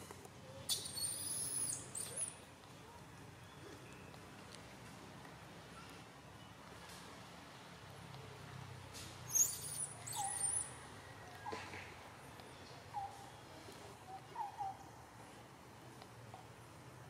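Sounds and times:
monkey high-pitched squeals: 0:00.7 - 0:02.3, 0:09.3 - 0:10.7.

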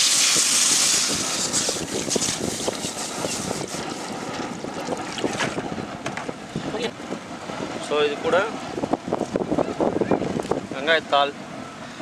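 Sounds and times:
steam hissing in hot wok: 0:00.0 - 0:04.1
water pouring and bubbling: 0:00.4 - 0:05.8.

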